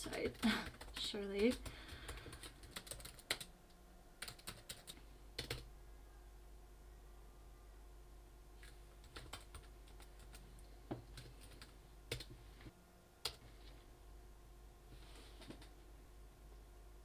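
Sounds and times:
laptop keyboard typing: 0.0 - 3.5, 4.2 - 5.7, 8.6 - 12.4, 13.2 - 13.4.

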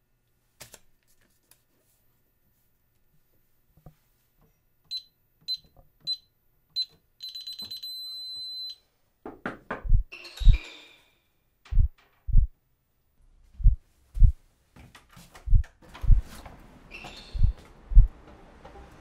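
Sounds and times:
alarm keypad beeps: 4.9 - 8.8
heavy low thuds: 9.8 - 10.1, 11.7 - 12.5, 13.6 - 14.4, 15.5 - 16.3, 17.4 - 18.1.

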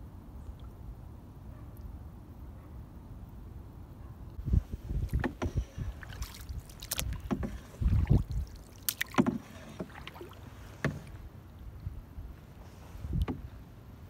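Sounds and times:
water sloshing: 4.5 - 13.6
paddle splashes: 4.6 - 13.7.

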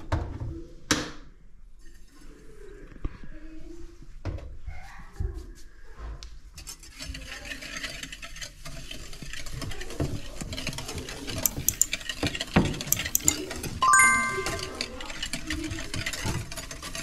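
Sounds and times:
dough stirred by hand in bowl: 6.7 - 11.1.

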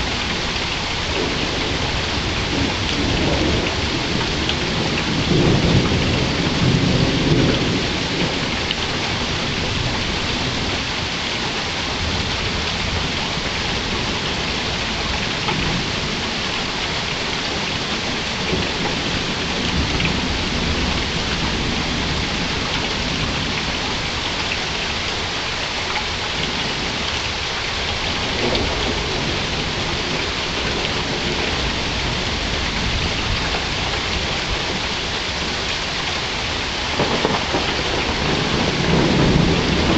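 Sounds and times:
thunder rumbling: 0.0 - 11.1, 27.8 - 39.9
steady rain falling: 0.0 - 39.9.

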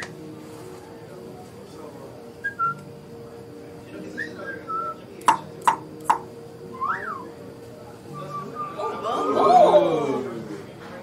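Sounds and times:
sharp taps: 5.2 - 6.2
short whistled notes: 8.2 - 8.9.

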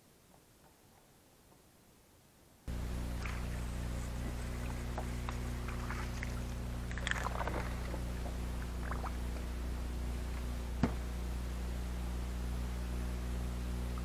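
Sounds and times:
electric trolling motor hum: 2.7 - 14.0
fish splashing at surface: 3.1 - 9.4
sharp knock: 10.8 - 11.0.

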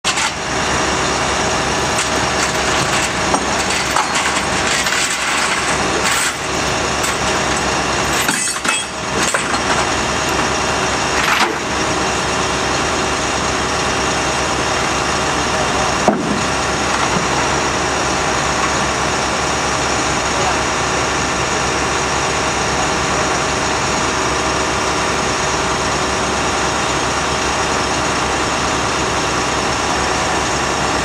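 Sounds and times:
truck engine idling: 0.0 - 31.0
metallic clanks of chains: 8.1 - 9.6.

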